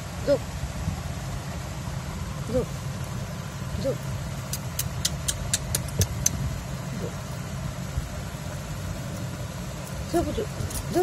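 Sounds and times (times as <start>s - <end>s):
glass bangles clinking: 9.8s - 11.0s.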